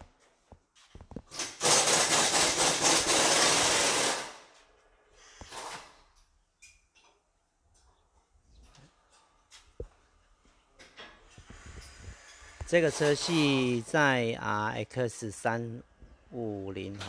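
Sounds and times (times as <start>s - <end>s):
pneumatic tool running: 1.3s - 4.4s.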